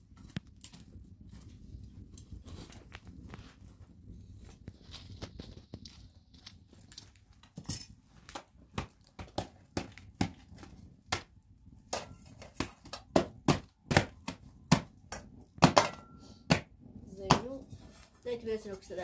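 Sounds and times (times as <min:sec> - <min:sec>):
hands slapping bread dough: 0:08.2 - 0:15.8.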